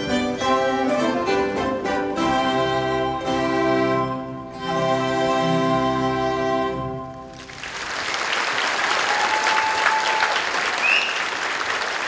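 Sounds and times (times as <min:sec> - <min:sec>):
audience applause: 0:07.3 - 0:12.0.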